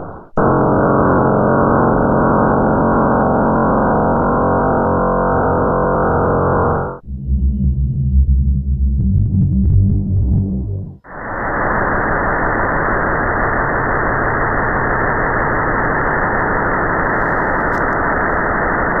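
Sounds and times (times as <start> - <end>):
steady rushing noise: 10.0 - 19.0.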